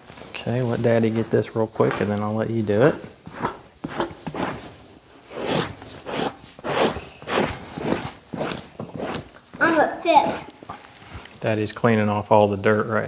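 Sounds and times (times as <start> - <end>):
knife scraping hide: 3.2 - 10.9.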